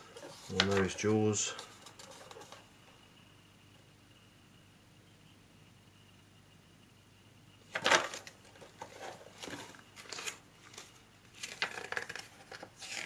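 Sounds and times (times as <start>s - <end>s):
paper pages rustling: 0.0s - 2.6s, 7.7s - 13.0s.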